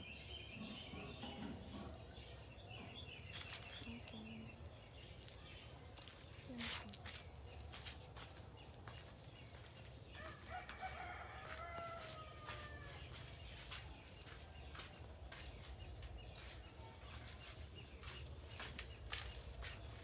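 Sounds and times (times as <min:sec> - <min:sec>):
rooster crowing: 0:10.1 - 0:13.2.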